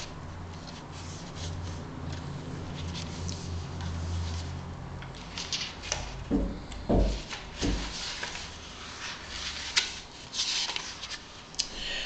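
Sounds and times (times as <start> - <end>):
book pages turning: 0.0 - 6.2, 7.1 - 11.6
soft knocks of book: 6.3 - 8.0.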